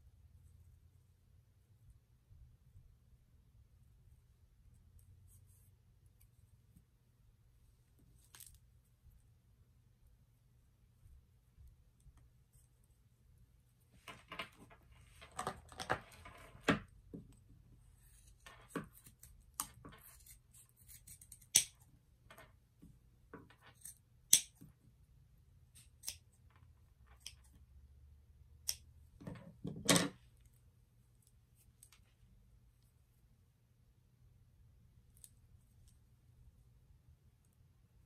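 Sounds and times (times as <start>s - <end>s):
cord rustling: 7.8s - 9.2s, 11.0s - 21.5s
scissors snipping: 18.9s - 21.8s, 23.8s - 24.6s.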